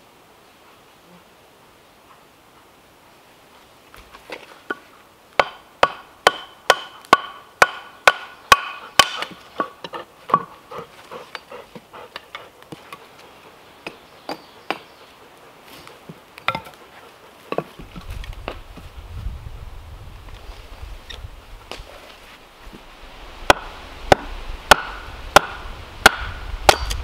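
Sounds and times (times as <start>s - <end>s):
wooden club striking hatchet: 5.4s - 10.5s, 23.5s - 27.0s
wood splitting: 23.5s - 27.0s.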